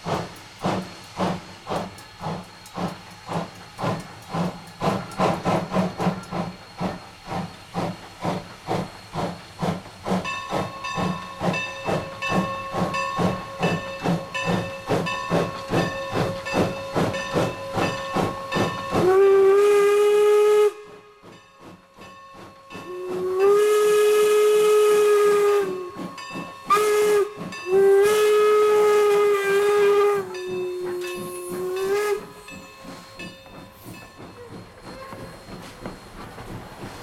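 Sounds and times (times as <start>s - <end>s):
passenger coaches rolling past: 0.0s - 37.0s
steam exhaust chuffs: 0.0s - 37.0s
steam whistle blasts: 17.7s - 21.2s, 22.8s - 33.0s.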